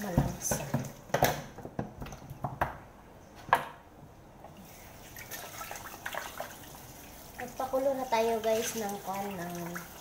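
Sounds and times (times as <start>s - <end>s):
water splashing and dripping: 5.0s - 10.0s.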